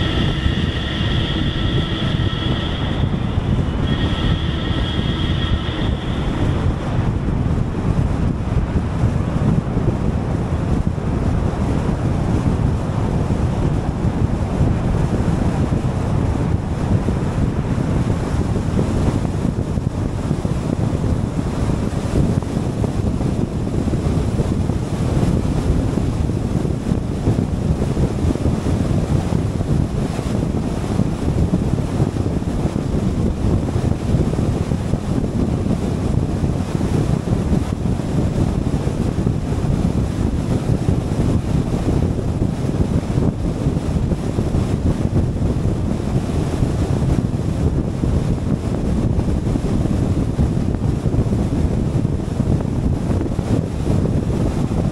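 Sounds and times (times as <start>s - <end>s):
road and tyre noise: 0.0s - 22.4s
wind buffeting microphone: 0.0s - 54.9s.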